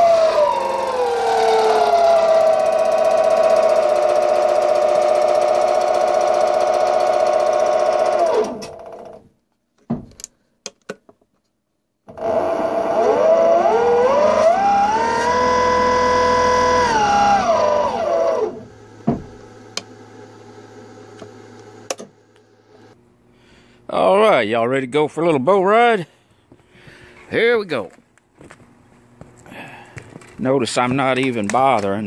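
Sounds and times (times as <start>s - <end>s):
electric motor whining: 0.0s - 9.2s, 12.1s - 23.0s
low hum: 13.6s - 23.9s.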